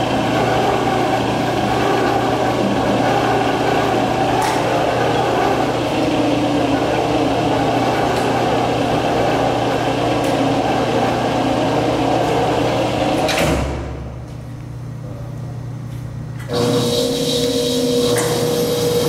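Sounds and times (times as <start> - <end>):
electric gear-motor humming: 0.0 - 13.3, 16.5 - 19.0
quiet electrical hum: 1.8 - 16.5.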